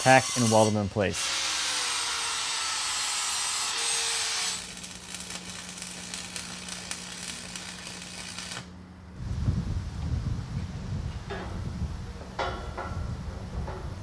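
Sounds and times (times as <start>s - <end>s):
angle grinder grinding steel: 0.0s - 4.8s
welding arc crackling: 0.0s - 8.8s
welder low hum: 0.0s - 14.0s.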